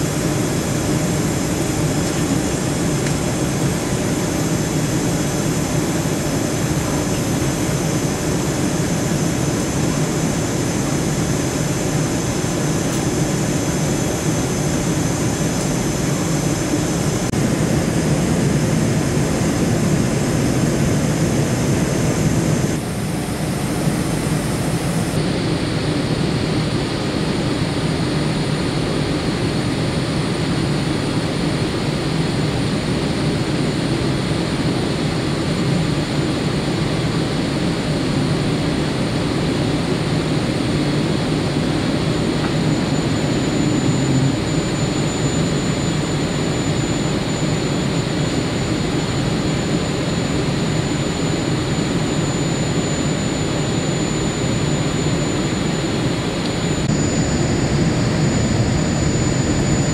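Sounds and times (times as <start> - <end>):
jet engines rumbling: 0.0 - 59.9
rushing air: 56.6 - 59.9.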